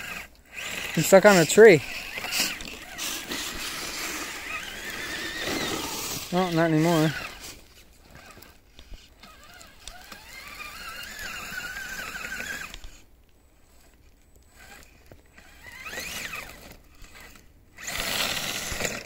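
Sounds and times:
toy crawler motor whining: 0:00.0 - 0:19.0.

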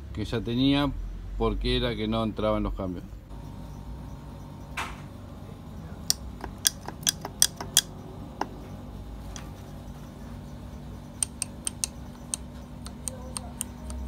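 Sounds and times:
metal clicking of gearbox parts: 0:06.1 - 0:08.6, 0:11.2 - 0:14.0.

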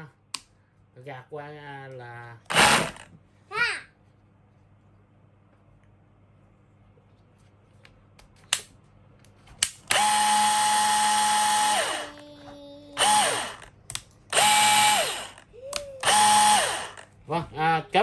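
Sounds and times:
rotary hammer motor whine: 0:02.5 - 0:03.1, 0:09.9 - 0:12.2, 0:13.0 - 0:13.7, 0:14.3 - 0:17.1.

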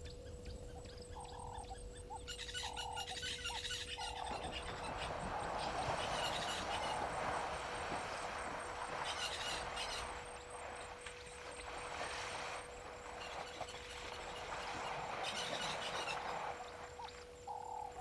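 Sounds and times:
faint steady hum: 0:00.0 - 0:18.0
water splashing and sloshing: 0:03.8 - 0:18.0.

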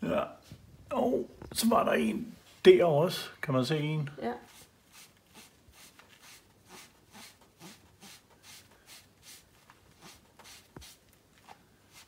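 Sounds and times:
sponge scrubbing plaster wall: 0:04.4 - 0:12.0.

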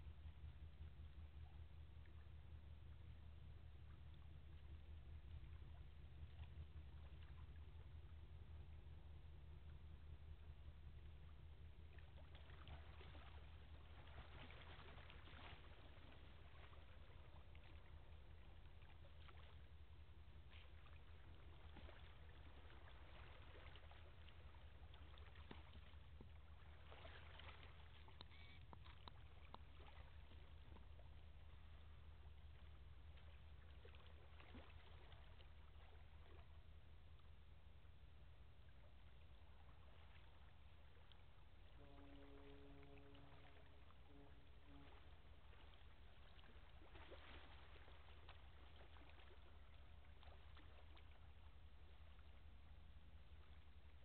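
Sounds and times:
distant diesel engine drone: 0:19.5 - 0:34.0
outdoor background hiss: 0:36.6 - 0:48.6.

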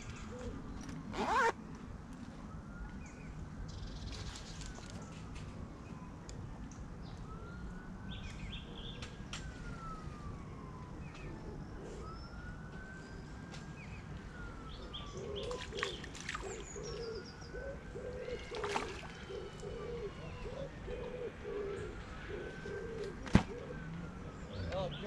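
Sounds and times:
emergency siren wailing: 0:04.7 - 0:25.0
pigeon cooing: 0:16.8 - 0:23.9.

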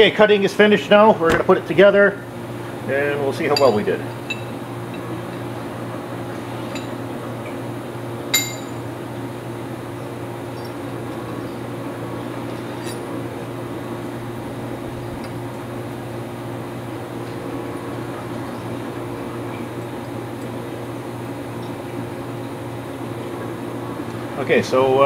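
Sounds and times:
steady machine hum: 0:00.0 - 0:25.0
metal parts clinking: 0:08.4 - 0:08.8.

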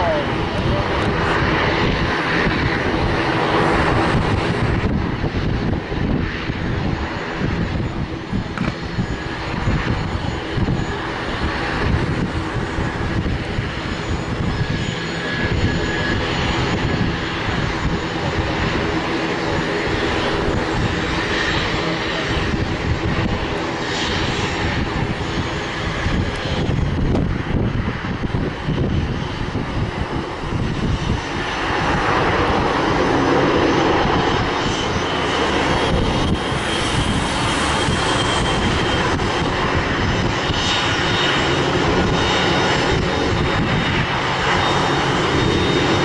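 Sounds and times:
jet engines taxiing: 0:00.0 - 0:46.0.

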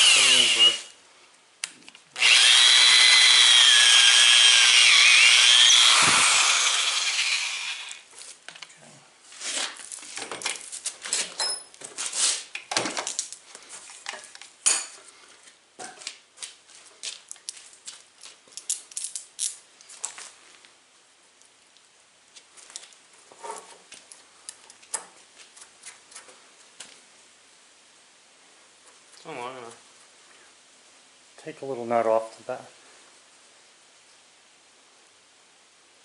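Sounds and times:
electric drill boring through wood: 0:00.0 - 0:00.9, 0:02.2 - 0:08.0.

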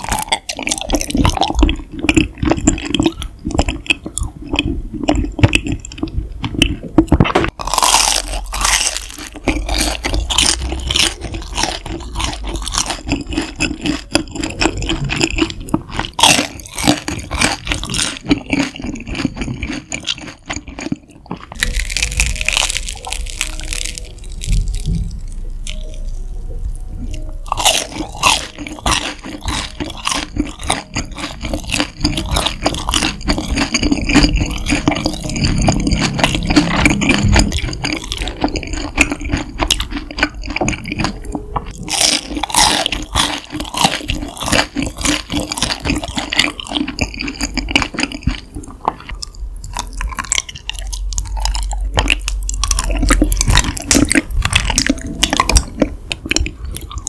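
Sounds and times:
crunching bites and chewing: 0:00.0 - 0:26.1, 0:27.1 - 0:57.0
faint piano playing: 0:21.4 - 0:47.3, 0:48.4 - 0:57.0.

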